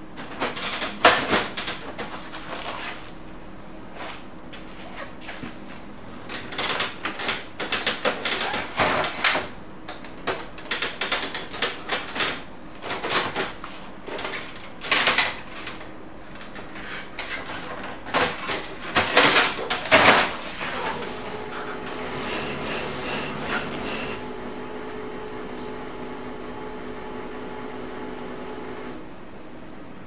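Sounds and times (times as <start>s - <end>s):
plastic printer parts knocking and snapping: 6.3s - 20.4s.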